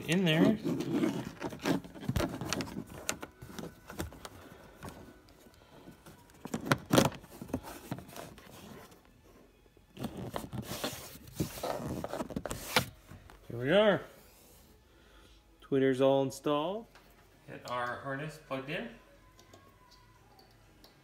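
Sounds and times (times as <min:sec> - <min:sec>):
wires and plastic scraping: 0:00.0 - 0:13.6.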